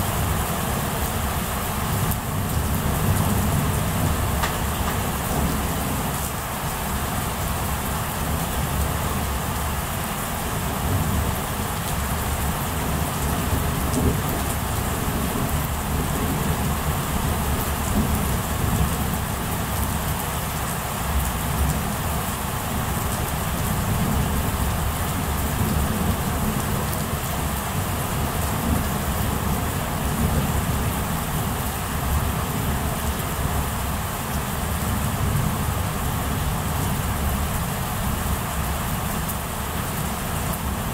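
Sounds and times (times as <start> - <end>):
steady rain: 0.0 - 40.9
low rumble of thunder: 1.8 - 9.4, 10.6 - 19.9.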